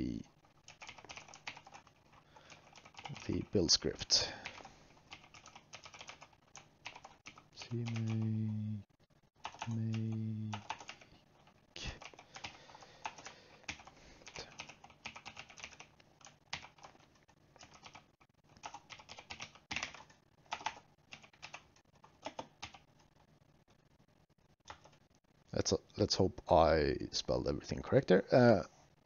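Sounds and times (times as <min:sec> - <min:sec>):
keyboard typing clicks: 0:00.7 - 0:03.3, 0:09.4 - 0:11.0, 0:18.6 - 0:22.8.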